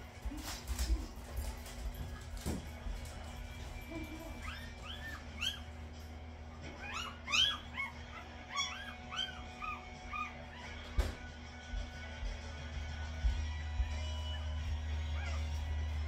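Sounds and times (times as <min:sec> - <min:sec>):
puppies squealing and whimpering: 0:04.1 - 0:11.1, 0:14.2 - 0:16.0.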